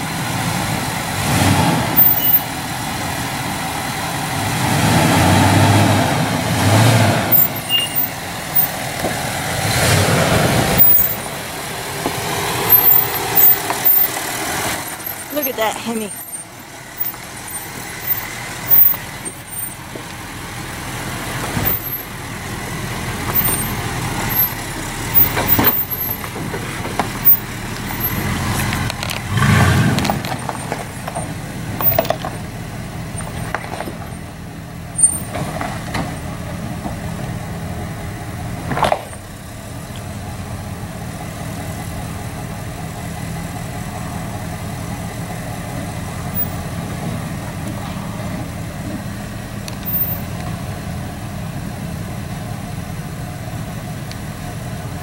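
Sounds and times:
pickup truck engine running low: 0.0 - 55.0
sharp knocks and thumps: 28.5 - 32.5, 33.2 - 34.2.

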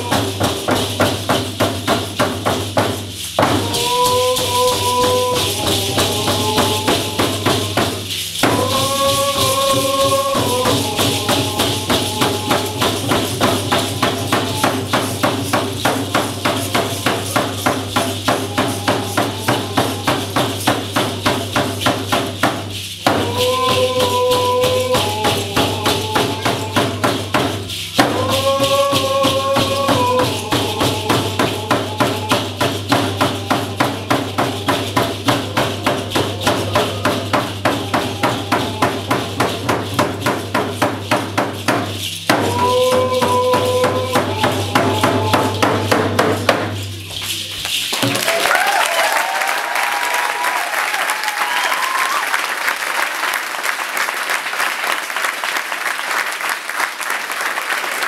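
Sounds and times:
men singing: 0.0 - 2.3, 2.9 - 22.2, 23.0 - 46.8
hand drums beating: 0.0 - 49.4
crowd whooping: 3.5 - 7.8, 47.5 - 53.5
crowd applauding: 47.0 - 58.0.

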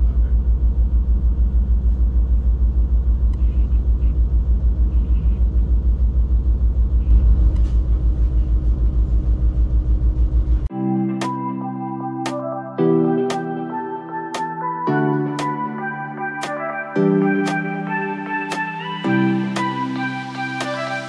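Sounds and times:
diesel engine throbbing: 0.0 - 10.7.

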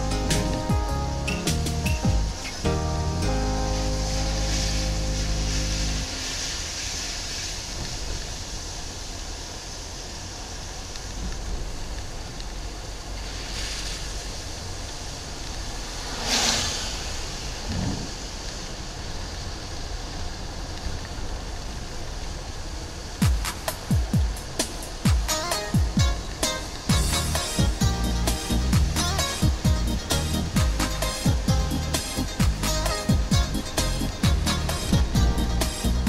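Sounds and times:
rushing swoosh: 0.0 - 7.8, 15.5 - 18.8
tyres hissing on wet road: 0.0 - 36.0
wind noise: 15.5 - 19.3.

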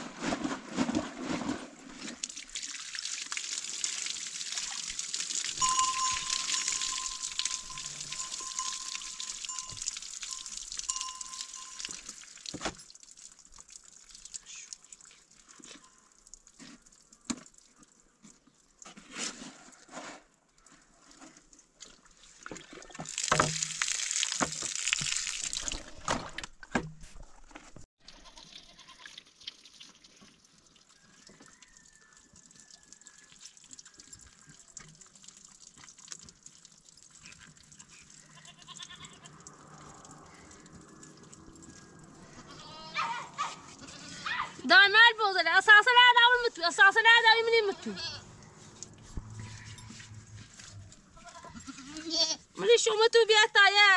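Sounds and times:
hose water splashing on a bag: 0.0 - 18.8, 21.6 - 26.2
goat bleating: 28.1 - 29.2, 38.2 - 39.5, 42.3 - 44.6, 47.6 - 48.4, 51.1 - 52.5.

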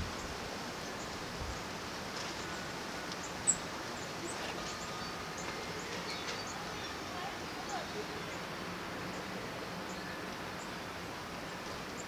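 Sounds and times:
wind: 0.0 - 12.0
small birds chirping: 2.4 - 12.0.

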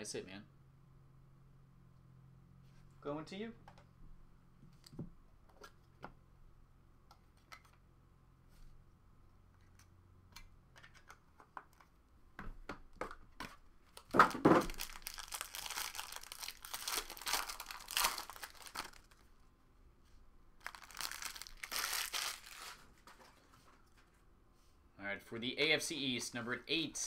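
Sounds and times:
foil wrapper ripping: 14.6 - 19.2, 20.6 - 23.0
foil wrapper crinkling: 14.6 - 19.3, 20.6 - 23.1.

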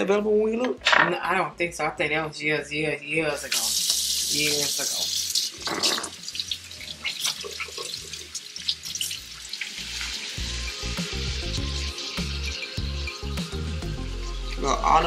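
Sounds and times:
kitchen tap running: 3.4 - 13.6
background music with bass: 9.2 - 15.0.

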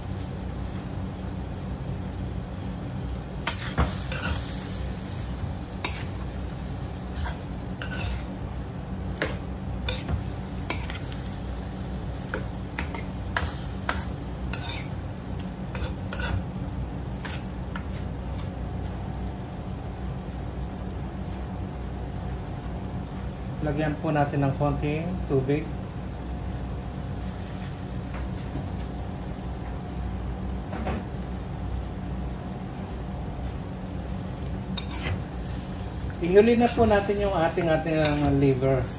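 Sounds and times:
steady low hum: 0.0 - 38.9
metal ladle scraping wok: 7.2 - 8.3, 13.9 - 14.9, 15.8 - 16.4, 34.8 - 35.2.

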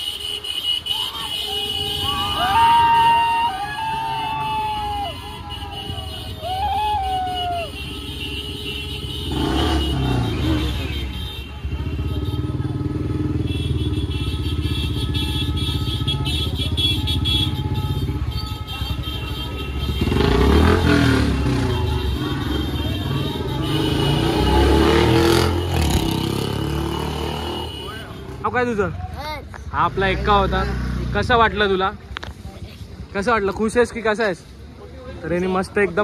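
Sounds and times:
motorbike engines running: 0.0 - 36.0
voices: 0.6 - 8.3.

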